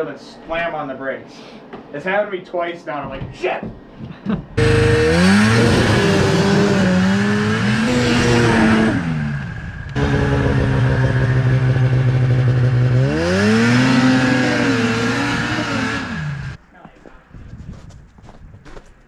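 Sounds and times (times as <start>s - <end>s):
snowmobile engine revving: 4.6s - 16.6s.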